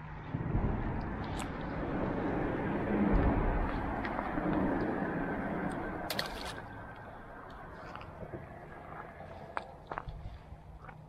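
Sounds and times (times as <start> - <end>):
passing vehicle rumbling: 0.0 - 10.8.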